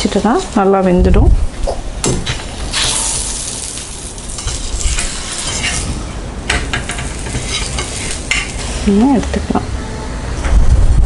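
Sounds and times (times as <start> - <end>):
oil sizzling: 2.2 - 9.3
spatula scraping pan: 2.7 - 9.4.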